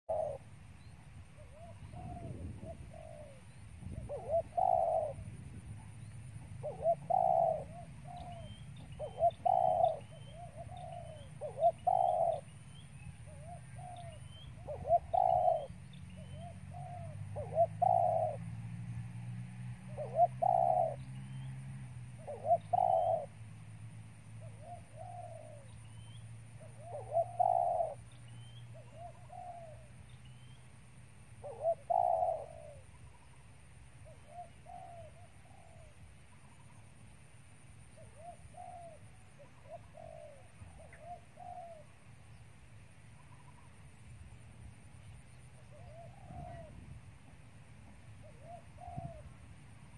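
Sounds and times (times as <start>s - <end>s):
dove cooing: 0.1s - 0.5s, 1.4s - 18.5s, 19.8s - 23.4s, 24.4s - 30.5s, 31.4s - 33.4s, 34.0s - 36.8s, 37.9s - 42.0s, 45.1s - 47.0s, 48.1s - 49.9s.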